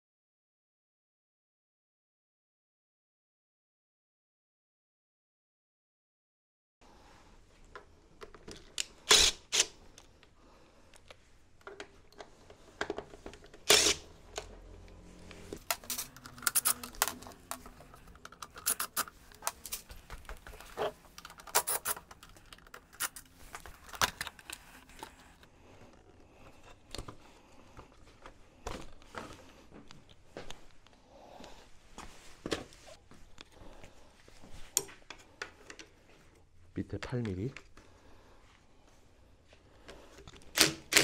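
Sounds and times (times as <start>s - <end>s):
cordless drill removing screws: 8.8s - 9.8s, 13.6s - 14.5s.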